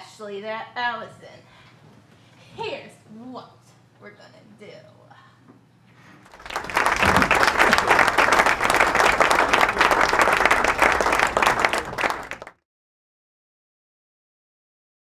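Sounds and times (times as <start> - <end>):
audience applauding: 6.2 - 12.6.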